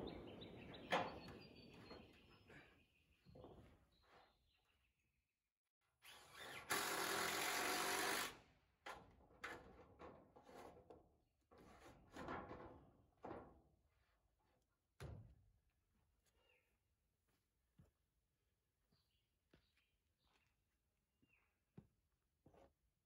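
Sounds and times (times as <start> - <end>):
cordless drill running: 6.1 - 8.4.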